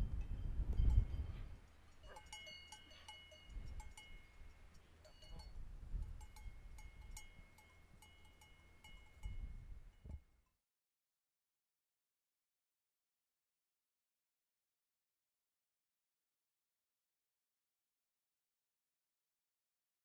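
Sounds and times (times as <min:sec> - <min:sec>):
wind gusts on microphone: 0:00.0 - 0:01.7, 0:03.5 - 0:04.4, 0:05.3 - 0:07.5, 0:09.2 - 0:10.2
livestock bells clinking: 0:00.0 - 0:10.2.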